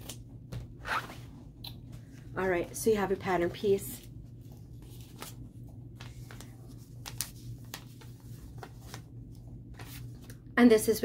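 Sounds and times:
paper rustling: 4.4 - 10.4.

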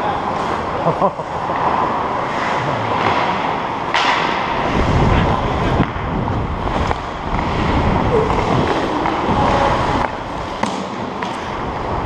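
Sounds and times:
skate blades scraping ice: 0.2 - 11.9
wind buffeting microphone: 4.5 - 10.5.

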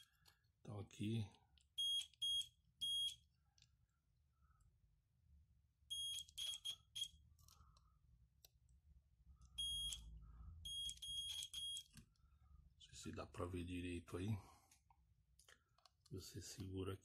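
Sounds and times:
multimeter continuity beeps: 1.8 - 3.2, 5.9 - 7.2, 9.6 - 11.9.

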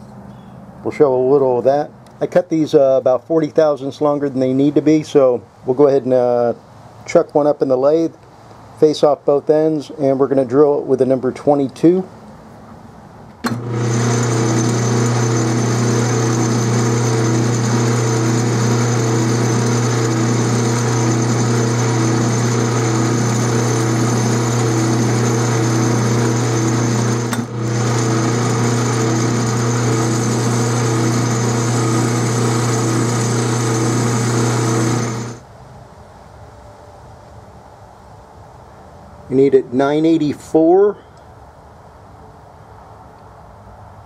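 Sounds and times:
metal lathe motor hum: 13.5 - 35.4.

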